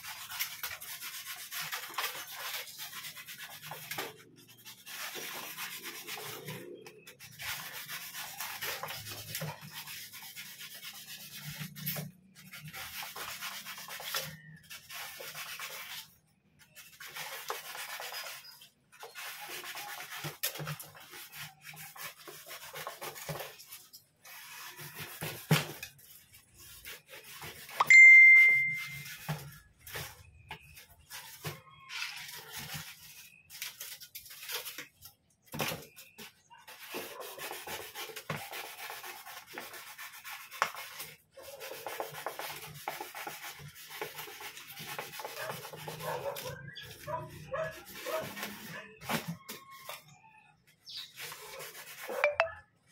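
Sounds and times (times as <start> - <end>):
high-pitched ding: 27.8 - 29.0, 52.2 - 52.6.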